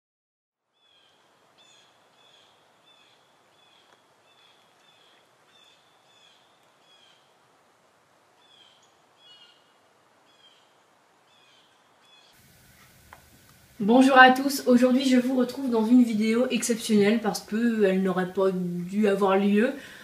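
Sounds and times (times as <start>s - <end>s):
faint bird chirping: 0.6s - 7.5s, 8.3s - 12.8s
low background hiss: 0.6s - 20.0s.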